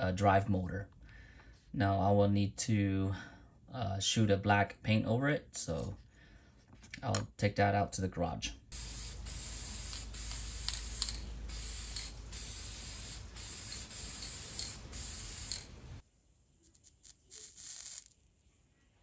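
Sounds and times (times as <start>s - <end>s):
spray paint can hissing: 8.7s - 16.0s, 16.6s - 18.2s.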